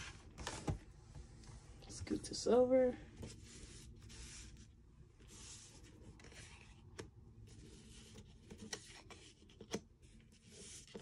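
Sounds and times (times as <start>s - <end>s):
cards sliding across a playmat: 3.2s - 6.8s.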